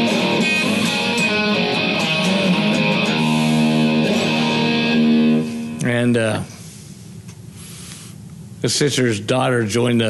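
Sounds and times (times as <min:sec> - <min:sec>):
guitar ringing chords: 0:00.0 - 0:06.2.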